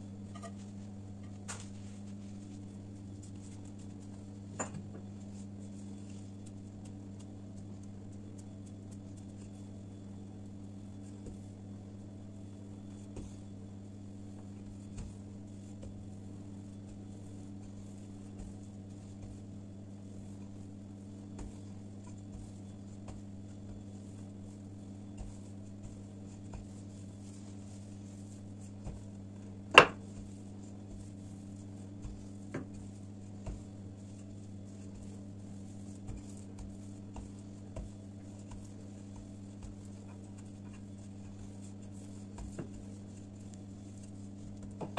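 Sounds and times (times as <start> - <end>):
steady low hum: 0.0 - 44.9
rolling pin knocking on tabletop: 29.7 - 30.0.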